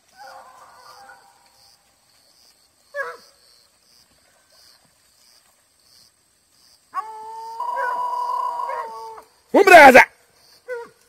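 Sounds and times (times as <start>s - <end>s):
distant dogs baying: 2.9s - 3.4s, 6.9s - 9.3s.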